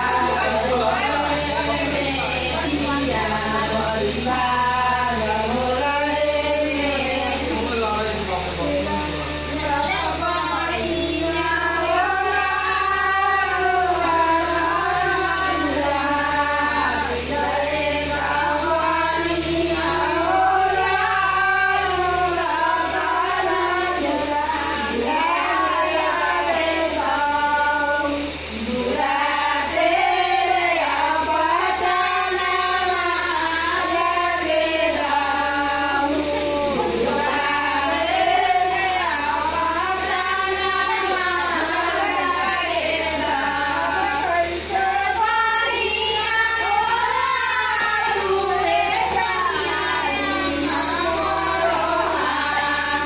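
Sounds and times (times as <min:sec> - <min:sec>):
women singing in unison: 0:00.0 - 0:53.0.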